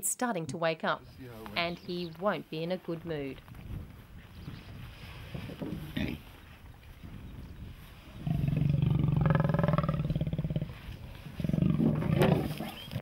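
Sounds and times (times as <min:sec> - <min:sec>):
leopard growling: 0:08.0 - 0:13.0.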